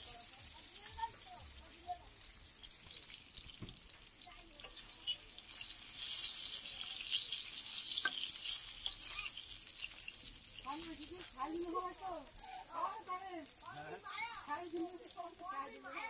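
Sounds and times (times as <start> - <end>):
chicken sizzling in oil: 0.0 - 16.0.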